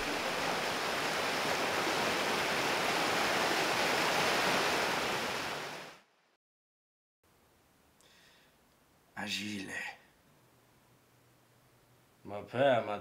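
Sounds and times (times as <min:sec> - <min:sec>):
water jet rushing hiss: 0:00.0 - 0:05.9.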